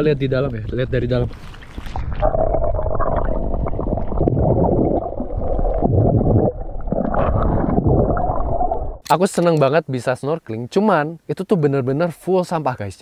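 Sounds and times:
muffled underwater rumble and gurgle: 0:00.0 - 0:09.0.

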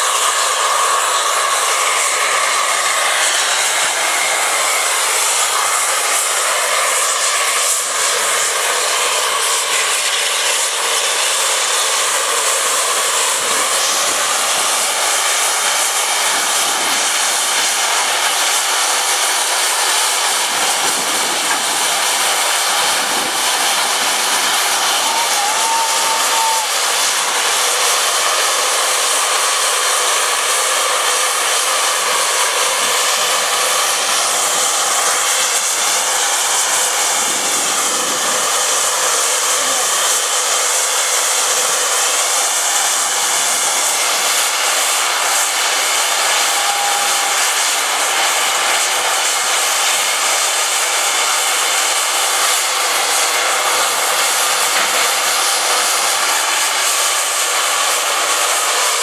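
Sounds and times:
steam locomotive hissing: 0:00.0 - 0:59.0.

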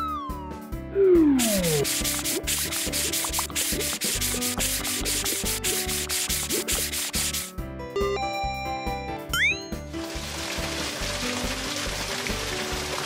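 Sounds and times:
cartoon sponge scrubbing: 0:01.2 - 0:07.5.

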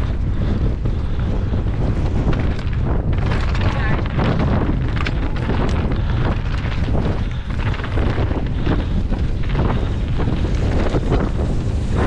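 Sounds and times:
bike knocks and rattles: 0:00.0 - 0:12.0
wind buffeting microphone: 0:00.0 - 0:12.0.

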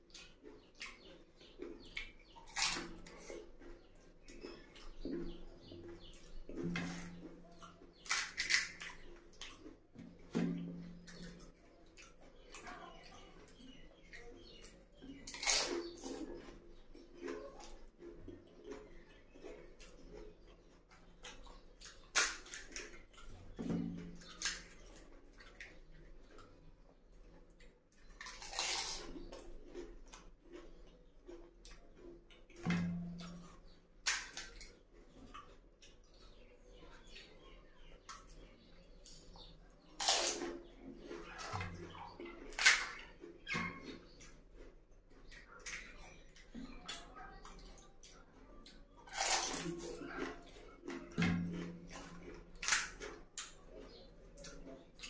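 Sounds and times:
wet chewing: 0:00.0 - 0:55.0
small crunches: 0:06.2 - 0:09.8, 0:28.0 - 0:32.1, 0:39.1 - 0:55.0.

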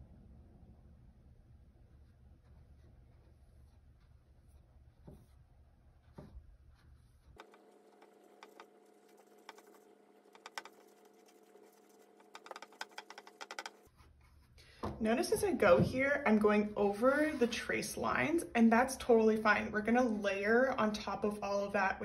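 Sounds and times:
faint steady hum: 0:00.0 - 0:22.0
paintbrush strokes on canvas: 0:01.9 - 0:14.6, 0:16.8 - 0:17.8.

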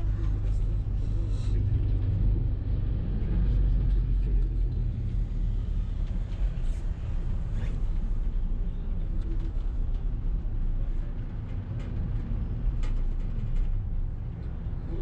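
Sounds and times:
moving vehicle rumble: 0:00.0 - 0:15.0
light clicks and rattles: 0:06.0 - 0:15.0.

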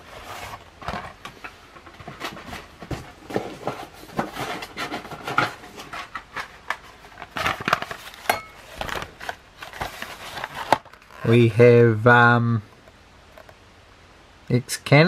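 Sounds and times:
plastic toy packs clicking and rustling: 0:00.3 - 0:11.4.

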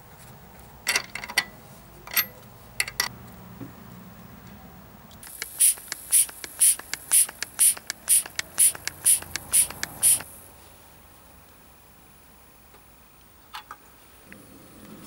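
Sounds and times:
hand vacuum pump hissing: 0:05.2 - 0:10.3
pump clicks: 0:05.2 - 0:10.3.

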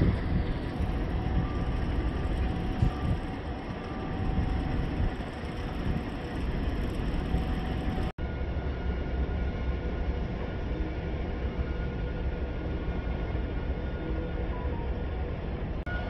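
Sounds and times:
distant heavy machinery rumble: 0:00.0 - 0:08.1.

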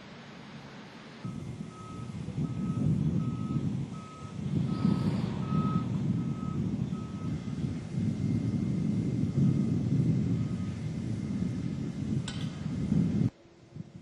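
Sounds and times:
engine rumbling: 0:00.0 - 0:14.0
backup alarm beeping: 0:01.3 - 0:07.5.

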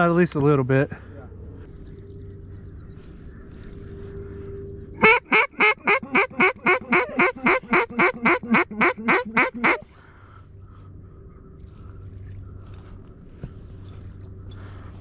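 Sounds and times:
duck call quacks: 0:05.0 - 0:09.8.

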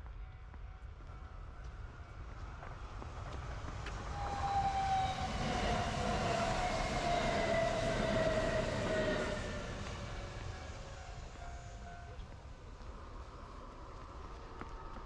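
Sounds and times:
electric train passing: 0:01.2 - 0:15.0
train motor whine: 0:02.6 - 0:12.3.

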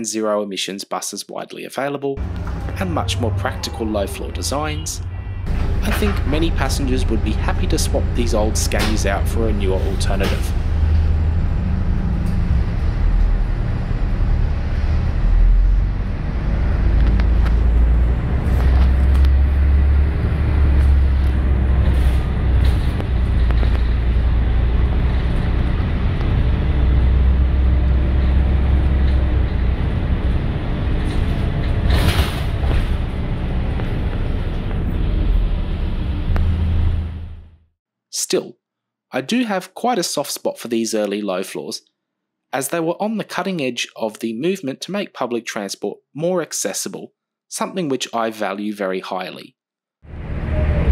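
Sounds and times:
bus engine rumble: 0:02.2 - 0:37.6, 0:50.1 - 0:50.9.

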